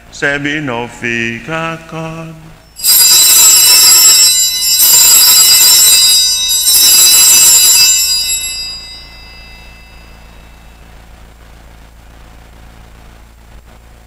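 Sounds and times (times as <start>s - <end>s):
altar bells ringing: 2.6s - 10.9s.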